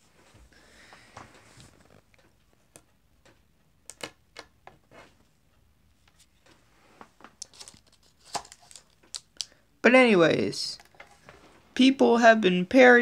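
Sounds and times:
faint clicks and taps: 0.2s - 9.6s.

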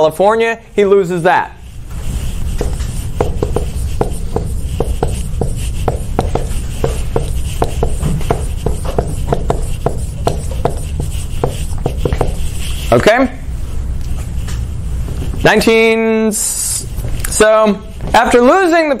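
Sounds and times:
low room hum: 0.0s - 19.0s
sharp tapping and clicking: 2.6s - 12.4s.

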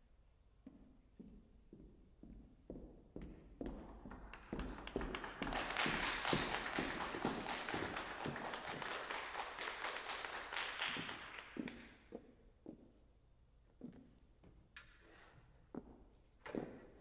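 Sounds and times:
heeled footsteps on wooden stage: 0.6s - 8.8s, 11.0s - 17.0s
audience applauding: 4.4s - 11.6s.

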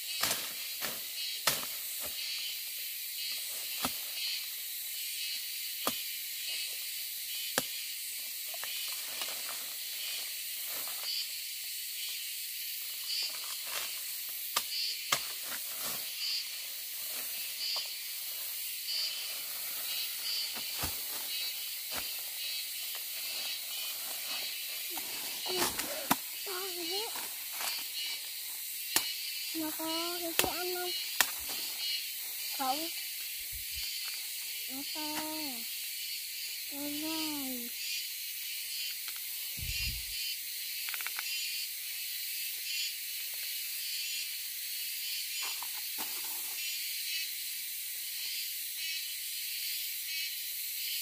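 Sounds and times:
insect chorus chirring: 0.0s - 51.0s
sharp clicks and snaps: 40.8s - 41.3s.

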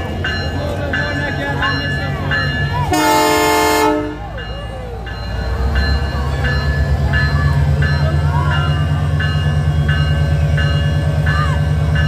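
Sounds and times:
diesel locomotive engine drone: 0.0s - 12.0s
level-crossing bell ringing: 0.0s - 12.0s.

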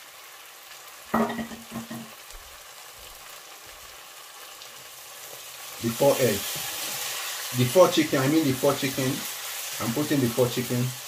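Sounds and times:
stew sizzling in a frying pan: 0.0s - 11.0s
spoon knocking on pan: 1.2s - 2.2s.

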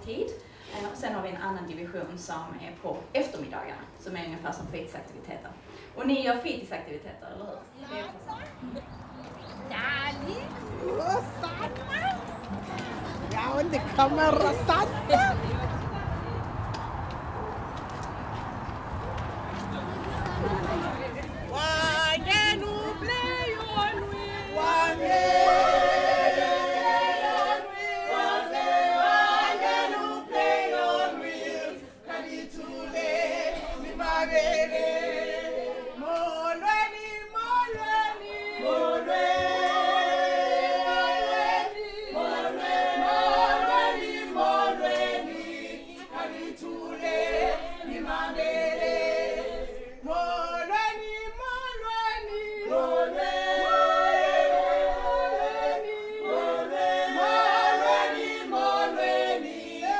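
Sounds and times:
choir singing without instruments: 20.5s - 59.9s.

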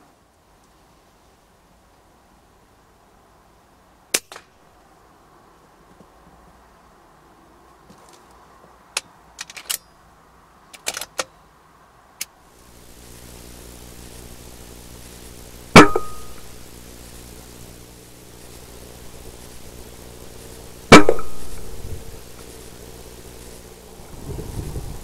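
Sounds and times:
sharp clicks: 10.7s - 11.3s
low machine hum with drone: 12.5s - 25.0s
air rifle firing crack: 15.7s - 16.8s, 20.9s - 22.6s.

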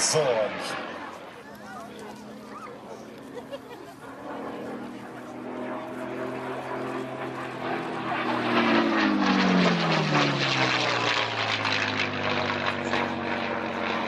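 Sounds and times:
propeller plane engine passing overhead: 0.0s - 14.0s.

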